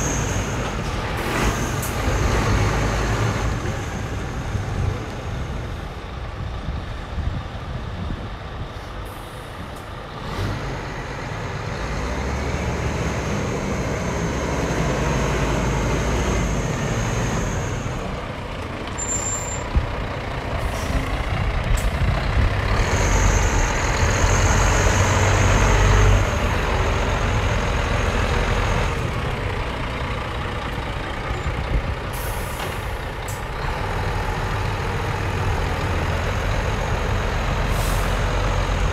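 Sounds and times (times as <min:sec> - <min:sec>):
diesel truck engine idling: 0:16.9 - 0:38.9.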